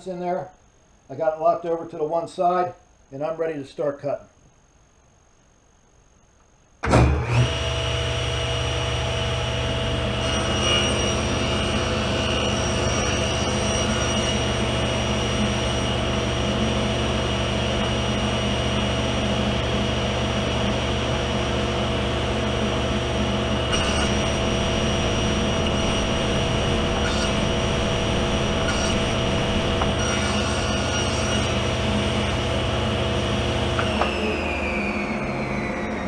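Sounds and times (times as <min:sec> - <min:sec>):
table saw running: 0:07.1 - 0:36.0
saw blade coasting down: 0:23.6 - 0:32.2.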